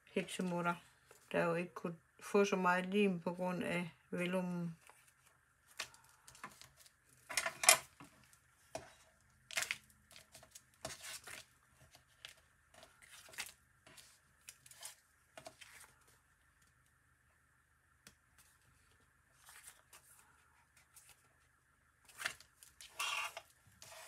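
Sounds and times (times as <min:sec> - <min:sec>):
paper rustling: 0:08.1 - 0:16.2, 0:18.4 - 0:21.4, 0:22.0 - 0:24.0.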